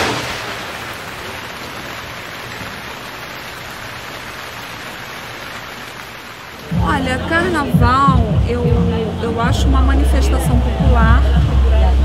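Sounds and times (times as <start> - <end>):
rain on pavement: 0.0 - 12.0.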